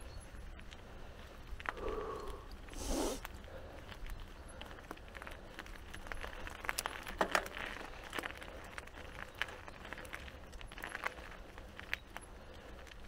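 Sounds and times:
mountain bike rattling: 0.0 - 13.0.

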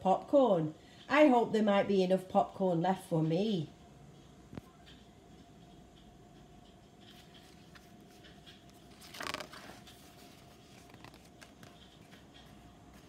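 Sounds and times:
steady hum: 0.1 - 13.0
page turning rustle: 7.0 - 13.0.

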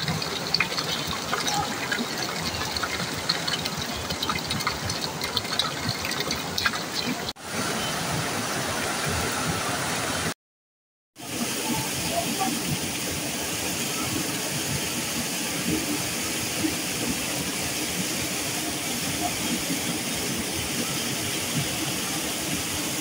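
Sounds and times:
waterfall rushing: 0.0 - 10.3.

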